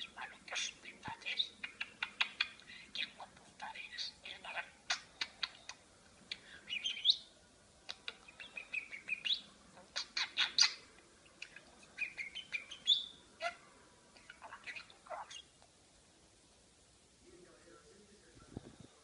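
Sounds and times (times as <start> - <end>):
budgerigar chattering: 0.0 - 3.3, 6.7 - 7.2, 7.9 - 13.6.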